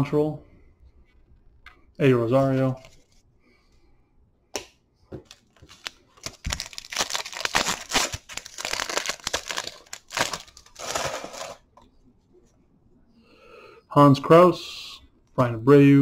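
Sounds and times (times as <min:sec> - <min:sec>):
foil wrapper crinkling and tearing: 0:05.3 - 0:11.6.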